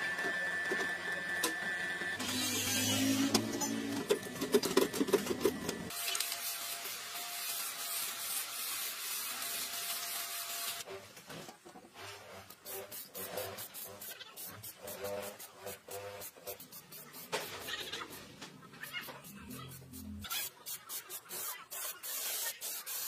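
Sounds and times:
spray paint can hissing: 7.4s - 10.8s, 12.6s - 18.0s, 18.9s - 23.0s
hand tool scraping sheet metal: 12.0s - 18.2s.

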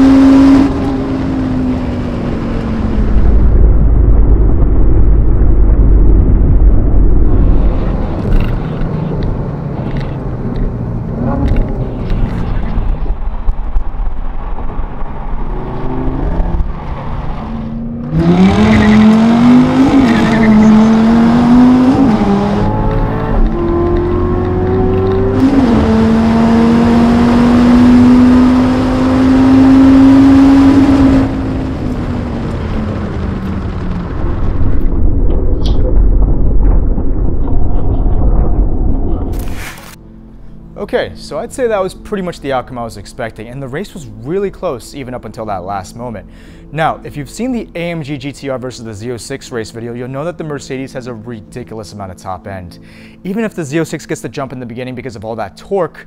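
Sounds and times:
racing car engines at full throttle: 0.0s - 35.8s
low engine rumble: 0.7s - 25.4s, 30.9s - 45.0s
car passing: 7.2s - 39.4s.

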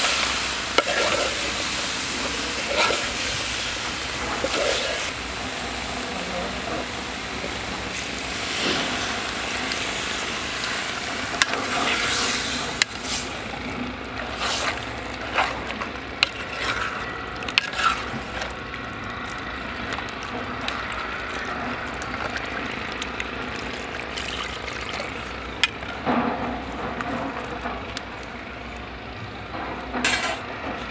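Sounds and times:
ladle stirring meat: 0.0s - 5.1s, 10.6s - 29.0s
water pouring into a metal pot: 9.0s - 26.0s.

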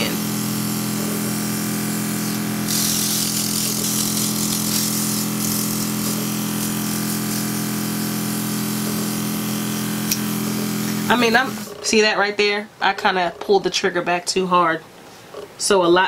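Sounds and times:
airbrush hissing: 0.0s - 11.8s
compressor humming: 0.0s - 14.0s.

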